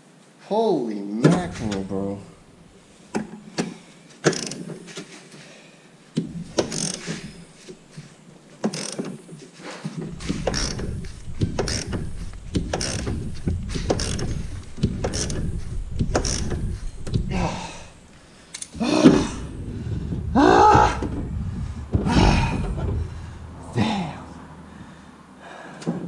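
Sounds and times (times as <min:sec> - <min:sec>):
hand ratchet ratcheting: 0:04.2 - 0:04.7, 0:06.5 - 0:07.3, 0:08.6 - 0:09.1, 0:10.2 - 0:17.4
low rumble: 0:10.2 - 0:25.3.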